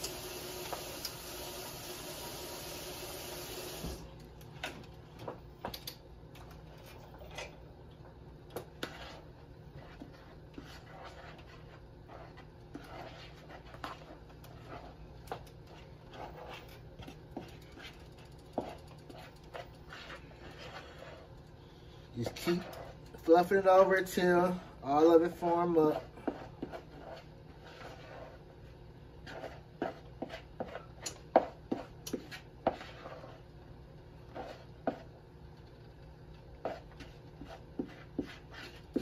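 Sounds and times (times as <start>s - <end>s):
utensil scraping bowl: 8.8s - 21.4s, 22.1s - 28.4s, 29.2s - 33.4s.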